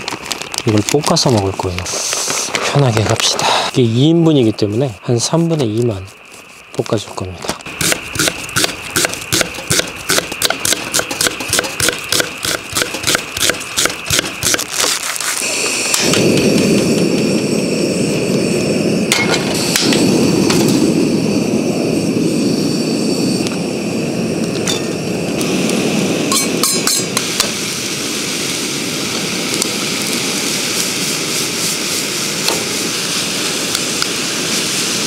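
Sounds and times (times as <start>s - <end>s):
loud rushing noise: 15.4s - 24.4s.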